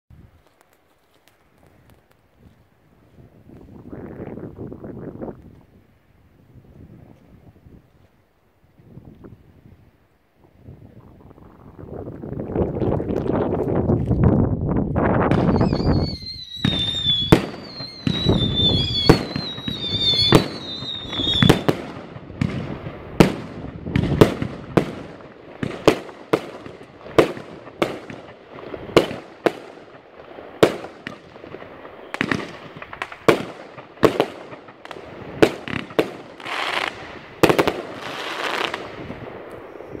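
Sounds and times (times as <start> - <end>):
firework bangs: 15.3 - 40.0
high falling whistle: 15.4 - 21.7.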